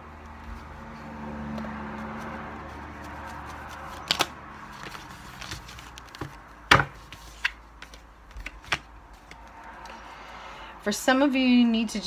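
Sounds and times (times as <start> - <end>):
cards snapping and tapping: 3.9 - 9.9.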